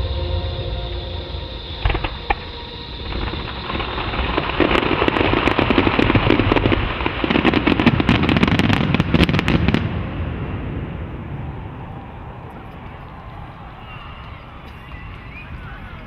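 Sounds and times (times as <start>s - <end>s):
low rumble: 0.0s - 7.3s
firework bangs: 0.0s - 15.8s
firework crackle: 0.0s - 16.0s.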